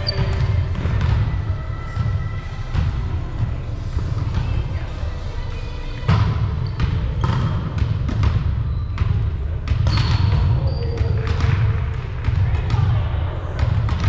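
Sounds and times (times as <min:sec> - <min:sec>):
volleyball slaps and thuds: 0:00.1 - 0:03.1, 0:06.1 - 0:12.9, 0:13.6 - 0:14.0.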